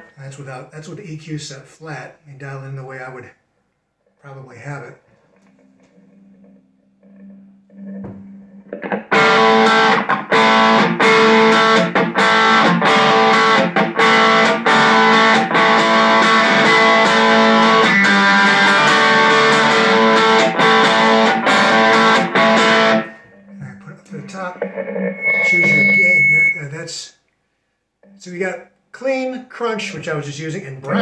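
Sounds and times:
overdriven electric guitar chords: 0:05.4 - 0:26.6.

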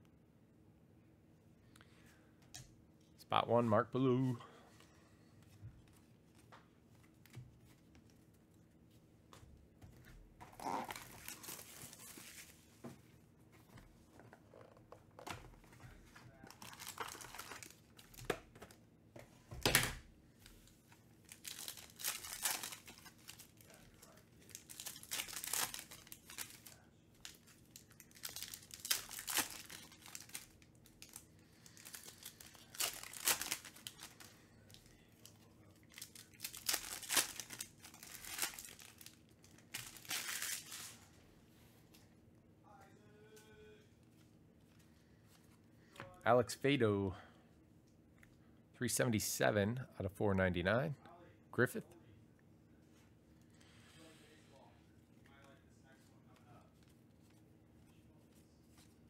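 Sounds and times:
foil wrappers tearing and crinkling: 0:10.6 - 0:12.6, 0:16.4 - 0:18.3, 0:21.2 - 0:34.7, 0:35.8 - 0:41.0.

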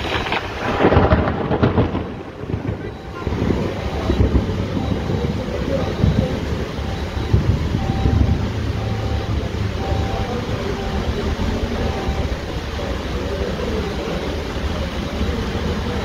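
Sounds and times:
wind buffeting microphone: 0:00.0 - 0:12.5
heavy rain: 0:00.0 - 0:16.0.

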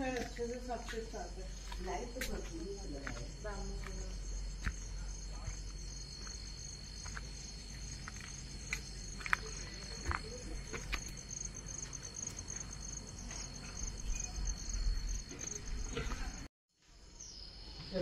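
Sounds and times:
insects trilling: 0:00.0 - 0:18.0.

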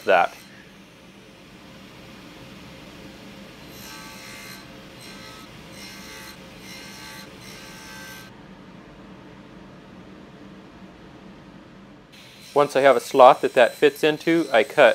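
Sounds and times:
table saw cutting wood: 0:00.0 - 0:00.6, 0:03.6 - 0:08.3, 0:12.2 - 0:14.9
running saw hum: 0:03.2 - 0:08.3, 0:12.2 - 0:14.9.

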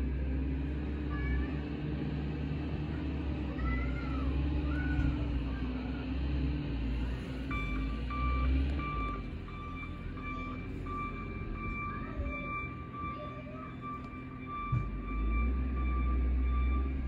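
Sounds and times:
diesel engine rumbling: 0:00.0 - 0:17.0
reversing alarm beeping: 0:07.4 - 0:17.0.

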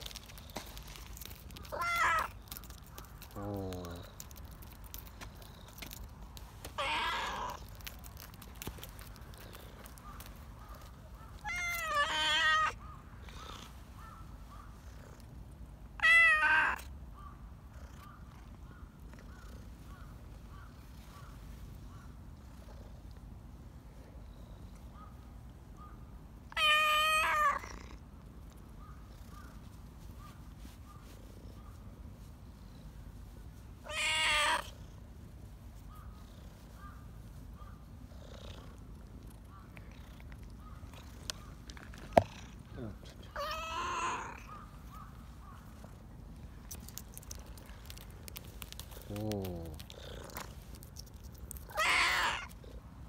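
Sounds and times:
cat meowing: 0:01.6 - 0:02.4, 0:06.8 - 0:07.7, 0:11.4 - 0:12.8, 0:16.0 - 0:16.9, 0:26.5 - 0:27.8, 0:33.8 - 0:34.8, 0:43.3 - 0:44.5, 0:51.5 - 0:52.6
cat purring: 0:45.7 - 0:52.9.

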